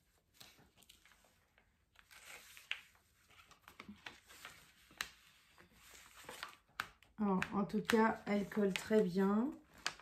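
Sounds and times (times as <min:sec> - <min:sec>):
plastic film being peeled: 0:09.7 - 0:10.0.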